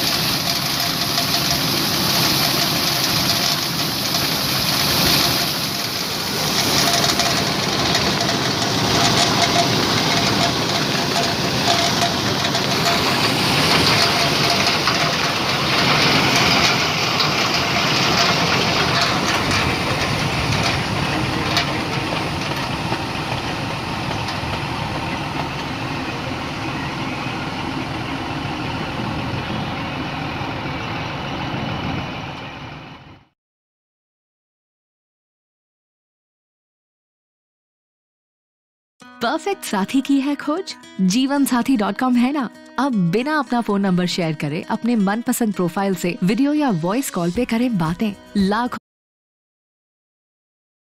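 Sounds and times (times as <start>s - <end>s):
grain pouring into trailer: 0.0s - 26.6s
unloading auger working: 0.0s - 32.8s
combine harvester engine running: 0.0s - 33.3s.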